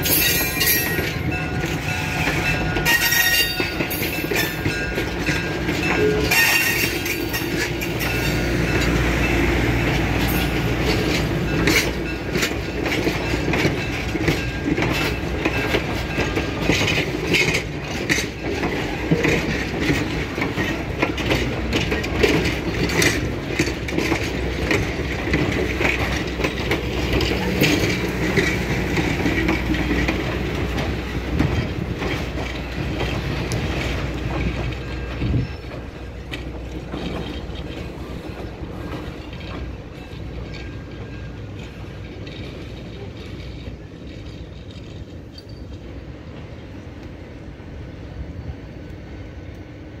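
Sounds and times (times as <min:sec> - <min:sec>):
train wheels clicking over rail joints: 0:00.0 - 0:50.0.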